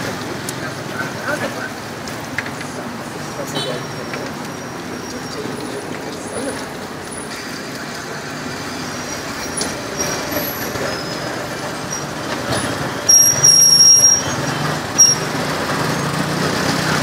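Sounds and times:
street traffic: 0.0 - 17.0
high-pitched squeal: 3.7 - 16.3.

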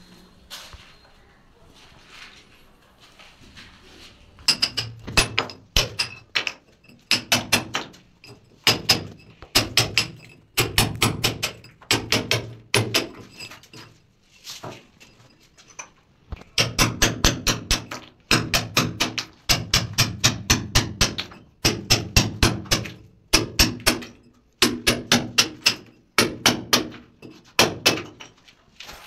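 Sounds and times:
hammer striking chisel: 4.5 - 13.5, 16.5 - 28.3.

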